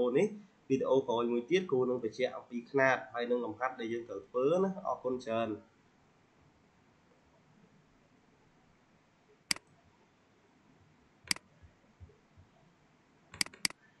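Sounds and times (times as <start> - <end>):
computer mouse clicking: 13.3 - 13.8.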